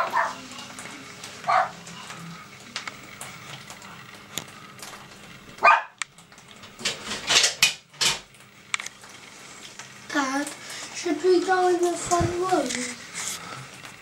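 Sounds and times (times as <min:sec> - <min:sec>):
dog barking: 0:00.0 - 0:00.4, 0:01.4 - 0:01.8, 0:05.6 - 0:06.0.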